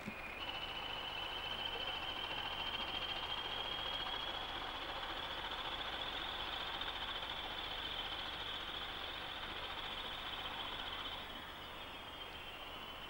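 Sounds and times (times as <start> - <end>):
diesel locomotive engines running: 0.0 - 13.0
turbocharger whistle: 0.1 - 13.0.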